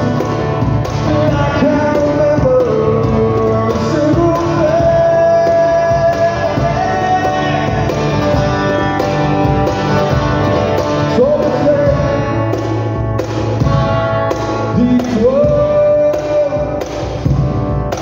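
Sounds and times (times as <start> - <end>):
man singing: 0.0 - 8.8, 11.0 - 12.9, 14.5 - 17.3
strummed acoustic guitar: 0.0 - 18.0.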